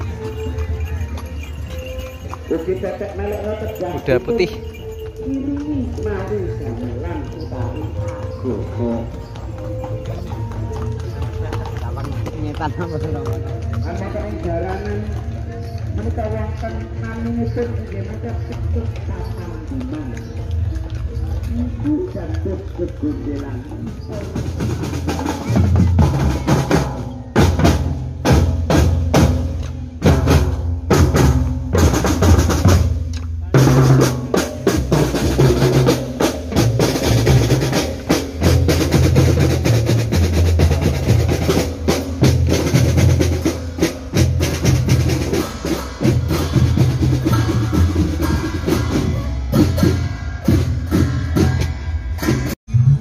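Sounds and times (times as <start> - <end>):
bell-lyra notes: 0.0 - 14.3
marching drum band: 5.8 - 52.6.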